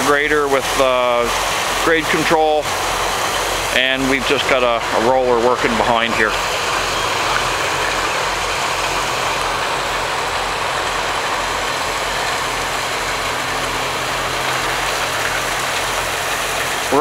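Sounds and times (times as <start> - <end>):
diesel engine running: 0.0 - 17.0.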